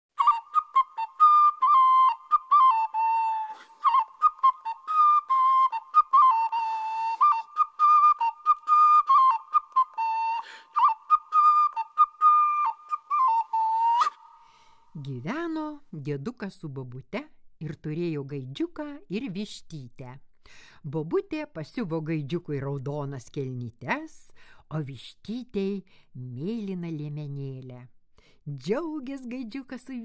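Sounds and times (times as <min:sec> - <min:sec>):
high-pitched pipe melody: 0:00.1 - 0:14.5.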